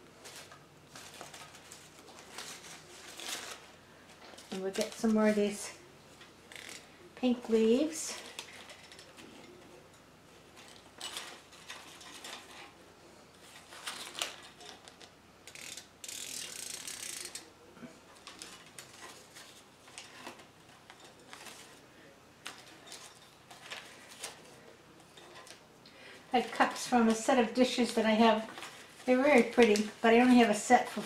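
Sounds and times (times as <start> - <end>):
crinkling rustle: 0.0 - 6.9, 7.5 - 15.8, 18.0 - 31.0
artificial leaves rustling: 0.0 - 31.0.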